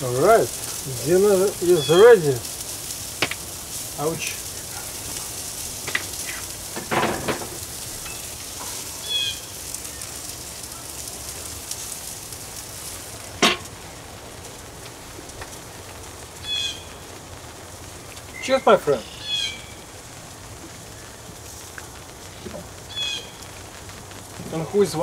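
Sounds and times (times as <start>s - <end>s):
kebabs sizzling on grill: 0.0s - 25.0s
grill lid shutting: 5.8s - 8.9s, 13.4s - 13.7s.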